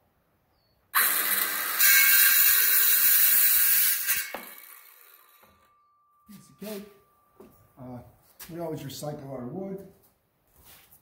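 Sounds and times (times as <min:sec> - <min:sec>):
circular saw cutting wood: 0:01.0 - 0:05.7.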